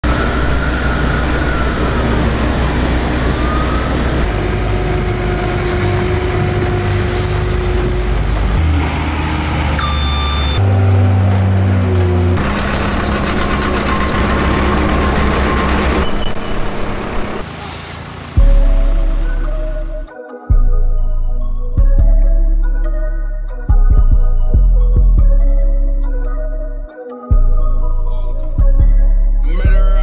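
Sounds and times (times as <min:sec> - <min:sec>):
paving machinery engines running: 0:00.0 - 0:17.8
brief high tone: 0:09.8 - 0:10.6.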